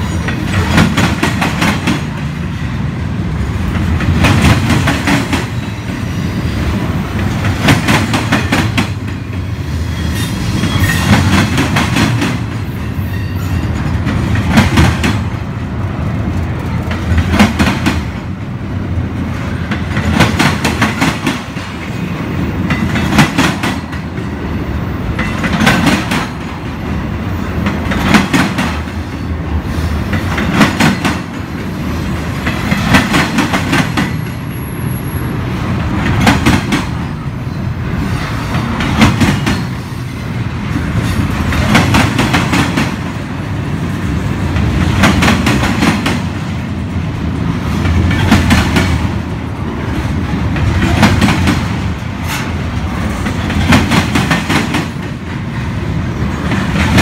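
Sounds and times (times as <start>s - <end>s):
wheels clickety-clack: 0.0s - 2.4s, 25.1s - 26.8s, 30.1s - 31.5s, 44.0s - 57.0s
train wheels rumbling on rail: 0.0s - 57.0s.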